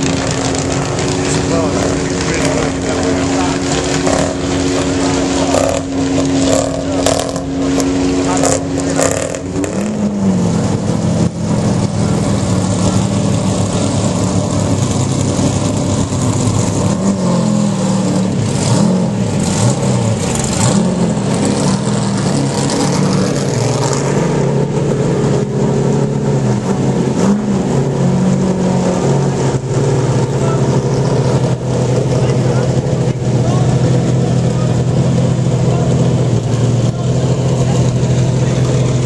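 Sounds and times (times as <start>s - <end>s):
race car engine throttle blips: 0.0s - 39.0s.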